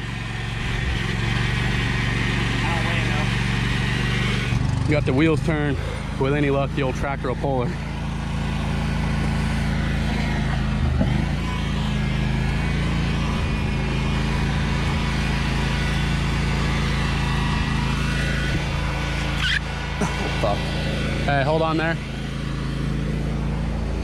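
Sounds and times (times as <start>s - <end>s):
lawn tractor engine under load: 0.0s - 24.0s.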